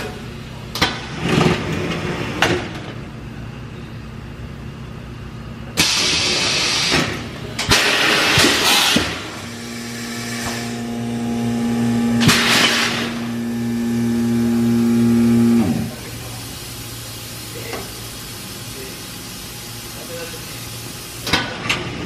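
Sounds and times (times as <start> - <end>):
machine motor humming: 7.6 - 17.3.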